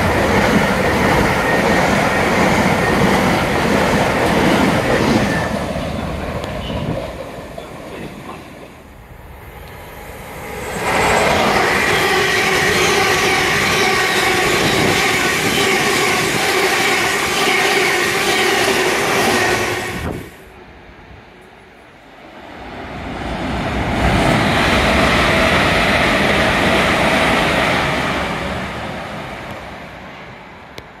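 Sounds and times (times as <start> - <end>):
whining train tones: 0.0 - 8.0, 8.6 - 21.9
train passing at speed: 0.0 - 31.0.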